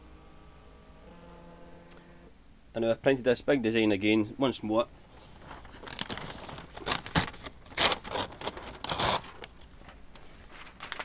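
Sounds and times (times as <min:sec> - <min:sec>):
paper rustling and scraping: 0:05.1 - 0:11.0.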